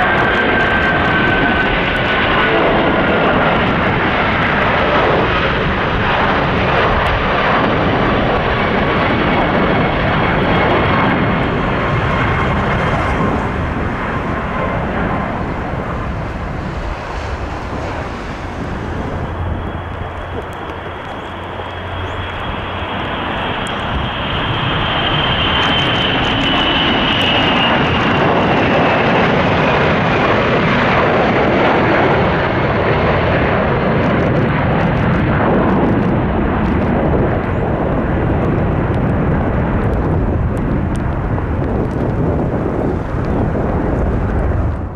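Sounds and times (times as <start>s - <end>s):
jet engines rushing: 0.0s - 44.9s
high whine sliding down: 15.3s - 27.2s.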